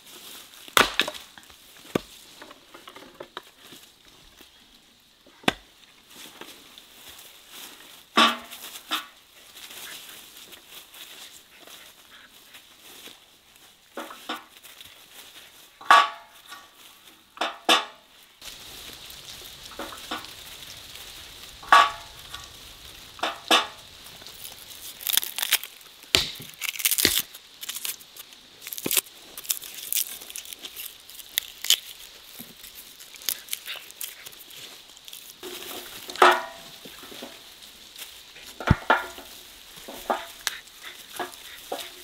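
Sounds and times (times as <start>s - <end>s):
garlic skins crackling and tearing: 18.4s - 42.0s.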